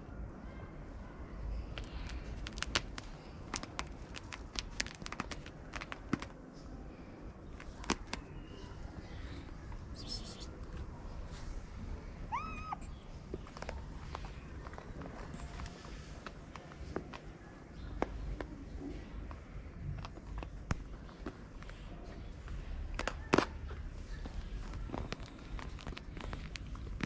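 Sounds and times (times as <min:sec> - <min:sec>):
kitten meowing: 0:12.3 - 0:12.9.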